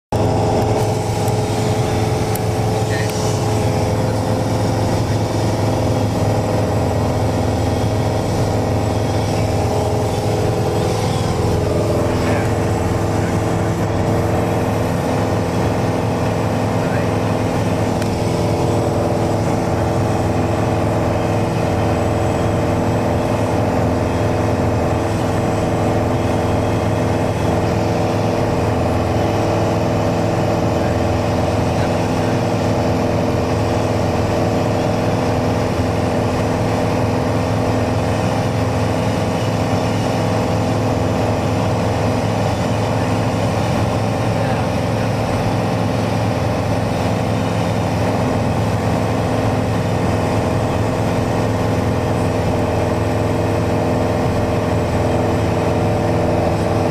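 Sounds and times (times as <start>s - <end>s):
light aircraft engine and propeller: 0.1s - 56.9s.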